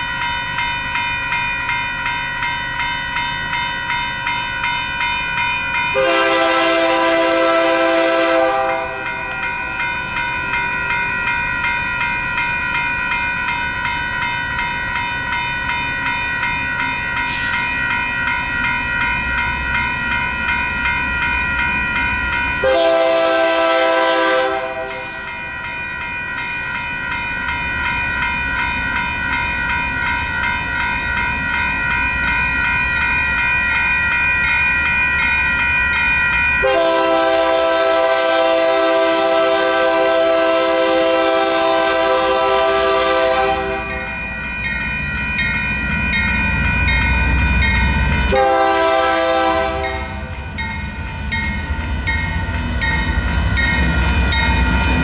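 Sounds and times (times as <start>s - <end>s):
crossing bell ringing: 0.0s - 55.0s
train rumble: 0.0s - 55.0s
train horn blast: 6.0s - 9.1s, 22.6s - 25.2s, 36.6s - 44.0s, 48.3s - 50.3s.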